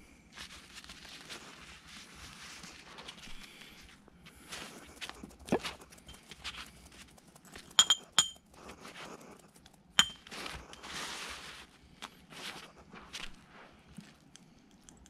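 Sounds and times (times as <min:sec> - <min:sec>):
soft rustling and shuffling: 0:00.0 - 0:07.8, 0:08.5 - 0:15.0
ceramic bowl clinking: 0:07.7 - 0:08.4, 0:10.0 - 0:10.3.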